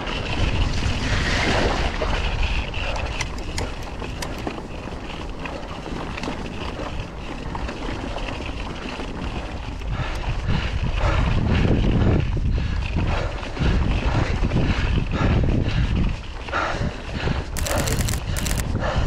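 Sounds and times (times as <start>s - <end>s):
bike rolling over rough trail: 0.0s - 13.0s, 17.4s - 18.7s
wind buffeting microphone: 0.0s - 19.0s
clicks and rattles: 17.6s - 18.6s.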